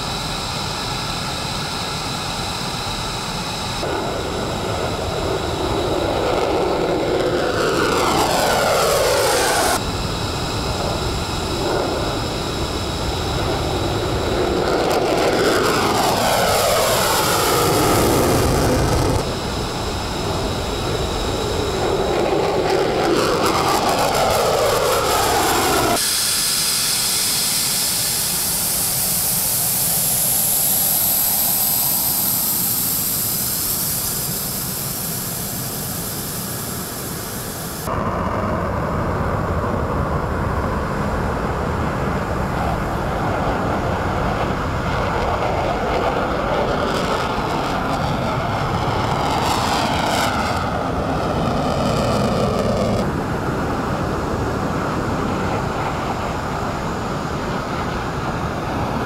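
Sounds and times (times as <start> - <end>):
jet engine roar on takeoff: 0.0 - 59.0
jet engine whine and hiss: 0.0 - 59.0.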